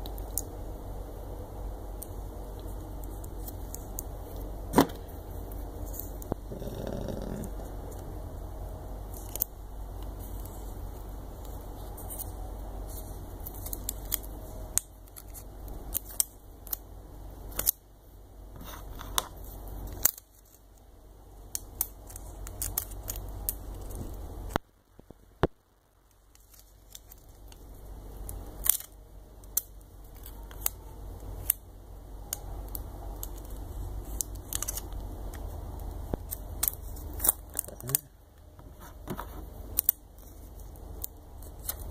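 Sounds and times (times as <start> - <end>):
low steady hum: 0.0 - 41.9
clicks and crinkles of plastic backing: 9.1 - 16.9, 21.5 - 31.6, 32.3 - 41.9.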